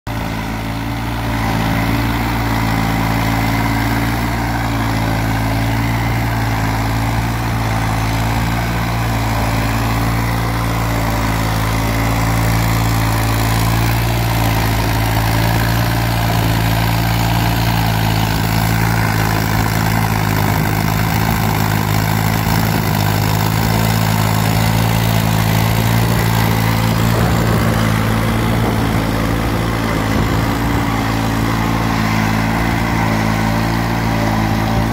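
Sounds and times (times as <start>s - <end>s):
tractor diesel engine running: 0.1s - 34.9s.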